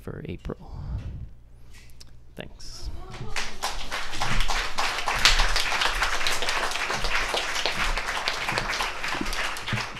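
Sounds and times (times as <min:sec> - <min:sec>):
audience applauding: 0:03.1 - 0:09.9.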